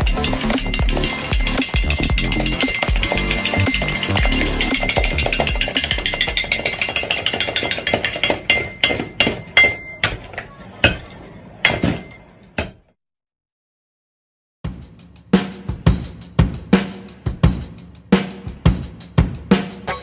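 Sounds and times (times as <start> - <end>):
candy pieces clinking onto metal tray: 0.0 - 8.6.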